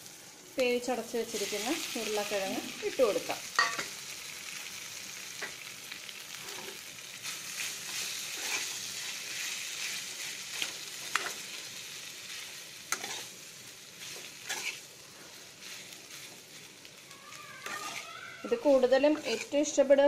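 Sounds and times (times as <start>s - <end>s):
food sizzling in oil: 0.0s - 20.0s
spoon scraping metal pan: 12.9s - 13.3s, 14.1s - 14.8s, 17.6s - 19.8s.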